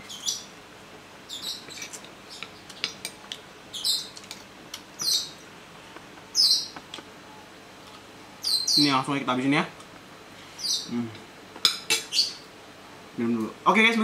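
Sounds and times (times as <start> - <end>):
bird chirps: 0.0 - 0.5, 1.3 - 2.6, 3.7 - 4.2, 5.0 - 5.4, 6.3 - 6.8, 8.4 - 8.9, 10.6 - 10.9, 12.0 - 12.4.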